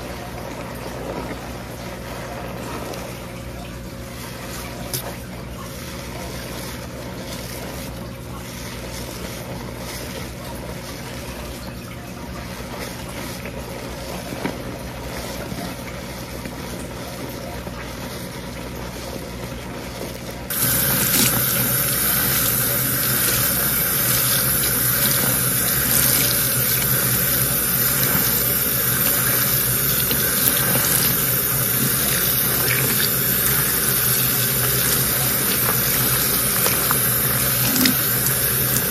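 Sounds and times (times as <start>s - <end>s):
tap water running: 0.0s - 38.9s
shampoo lather squishing: 0.4s - 38.9s
steady low hum: 20.5s - 38.9s.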